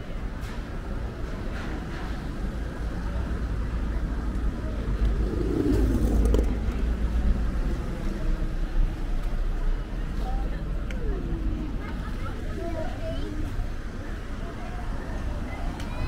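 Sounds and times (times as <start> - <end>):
car engine and tyres rumbling: 0.2 - 11.4.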